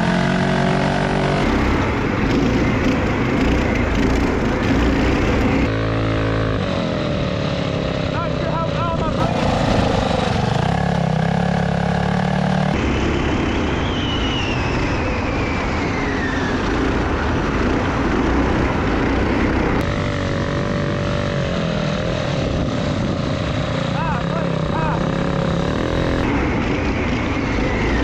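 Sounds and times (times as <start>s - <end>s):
go-kart engines running hard: 0.0s - 28.0s.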